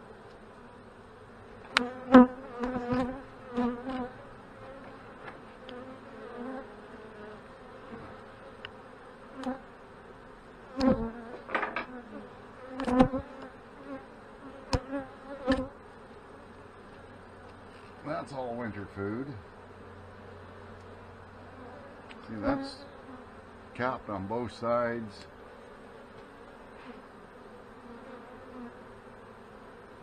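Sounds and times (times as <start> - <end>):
honey bees buzzing: 0.0 - 30.0
cracks and knocks of hive frames: 1.6 - 5.9, 10.7 - 13.6, 14.7 - 15.7.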